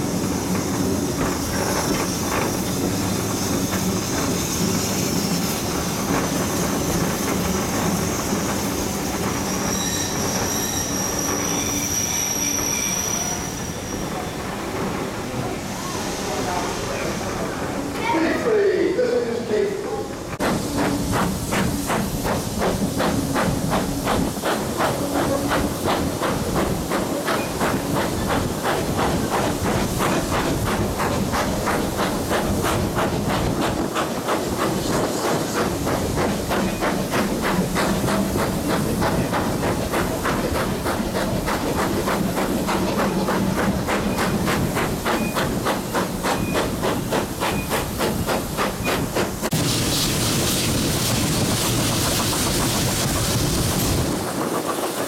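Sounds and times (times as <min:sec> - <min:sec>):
steam hissing: 0:00.0 - 0:17.9, 0:18.5 - 0:55.0
steam locomotive exhaust beats: 0:20.4 - 0:55.0.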